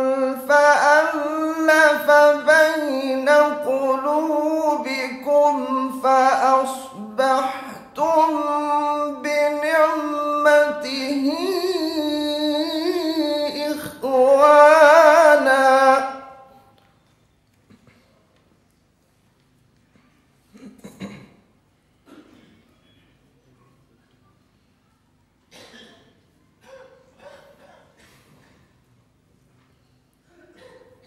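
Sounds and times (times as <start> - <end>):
man reciting melodically into microphone: 0.0 - 16.7.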